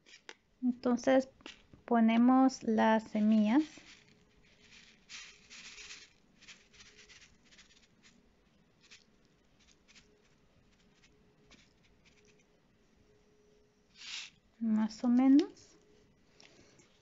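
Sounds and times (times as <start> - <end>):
paper seed packet rustling: 3.2 - 8.2.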